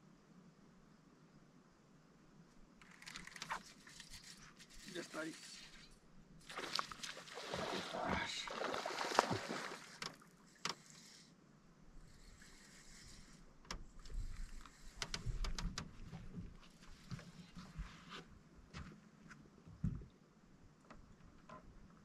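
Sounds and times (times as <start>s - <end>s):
water splashing and sloshing: 2.8s - 11.2s.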